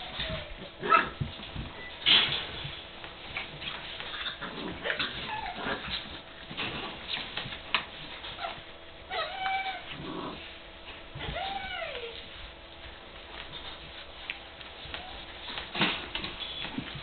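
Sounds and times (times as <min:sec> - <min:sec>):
puppies whining and yipping: 0:00.0 - 0:02.0, 0:03.4 - 0:06.2, 0:08.2 - 0:10.0, 0:11.1 - 0:12.4
scuffling and small knocks: 0:00.0 - 0:17.0.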